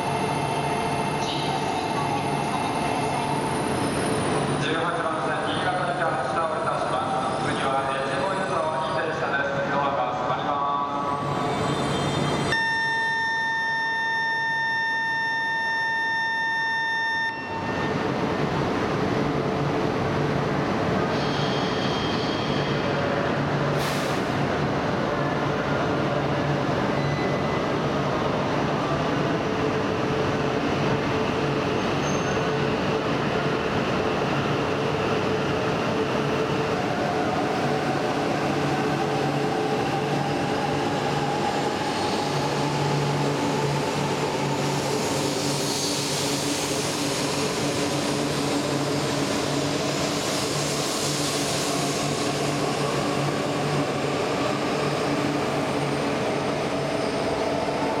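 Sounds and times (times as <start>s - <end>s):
train whine rising in pitch: 12.5s - 18.0s
hiss of passing train cars: 20.4s - 25.2s, 33.0s - 58.0s.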